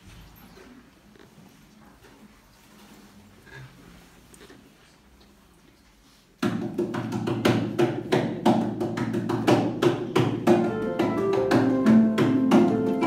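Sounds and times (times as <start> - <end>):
sharp percussive knocks: 6.4 - 13.0
harp duo playing: 10.6 - 13.0.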